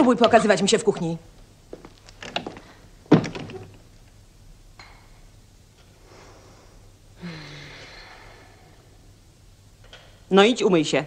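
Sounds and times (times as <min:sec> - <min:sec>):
person sighing: 0:06.1 - 0:08.8.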